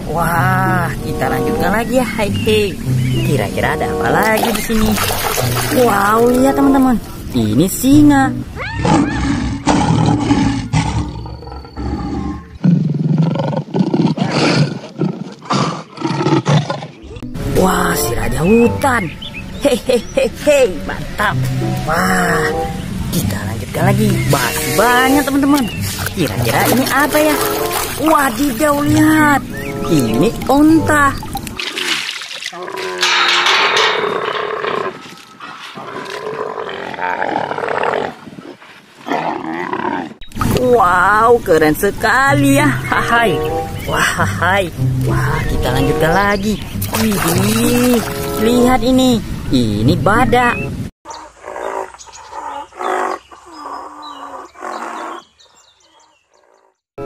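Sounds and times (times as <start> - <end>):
lion roaring: 8.6 - 17.2, 32.6 - 38.2, 39.0 - 40.2
camel calling: 21.4 - 31.7, 32.6 - 38.2.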